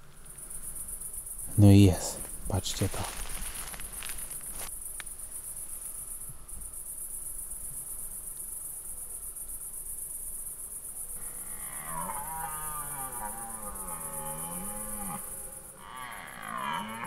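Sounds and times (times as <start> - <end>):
crickets chirping: 0.0 - 17.0
deer stag roaring: 11.2 - 17.0.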